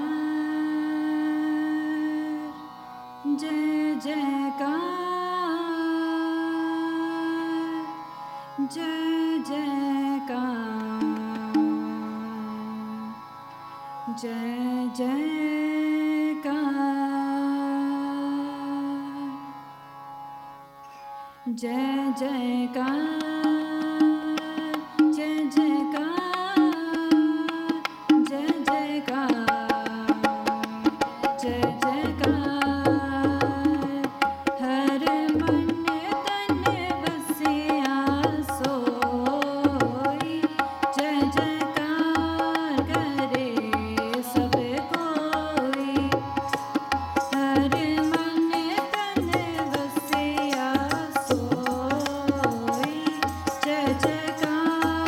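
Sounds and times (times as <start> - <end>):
harmonium held notes: 0.0 - 55.0
woman singing devotional melody: 0.0 - 55.0
tabla beat: 23.2 - 55.0.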